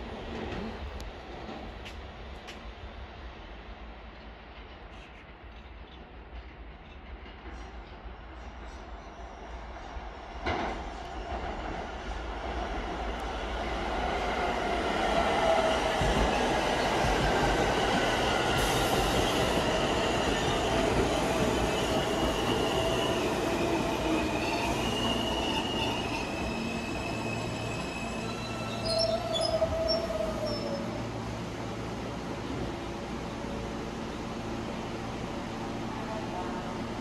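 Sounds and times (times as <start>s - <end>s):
subway train rumble: 0.0s - 37.0s
wheels squealing: 24.0s - 31.0s.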